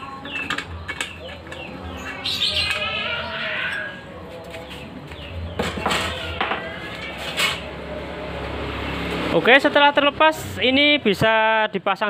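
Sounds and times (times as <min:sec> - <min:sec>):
background voices: 0:00.0 - 0:11.1
metal plate scraping: 0:05.6 - 0:07.7.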